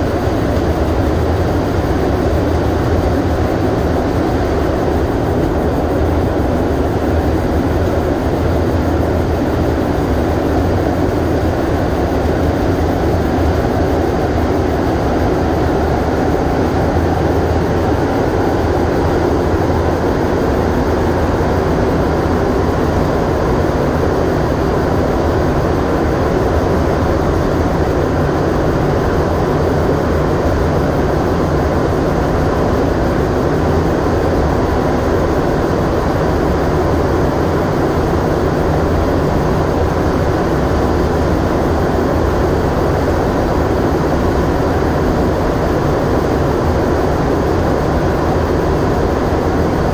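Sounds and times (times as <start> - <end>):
subway train rumbling in tunnel: 0.0 - 49.9.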